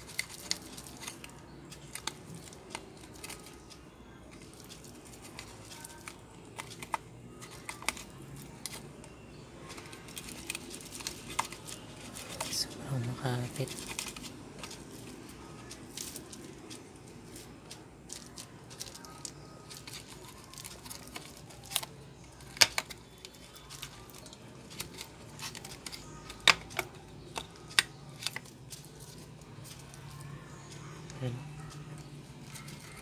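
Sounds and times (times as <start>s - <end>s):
plastic clicks and scrapes: 0.0s - 12.6s, 13.7s - 30.2s
faint low hum: 0.0s - 33.0s
sharp plastic snaps: 17.7s - 28.8s.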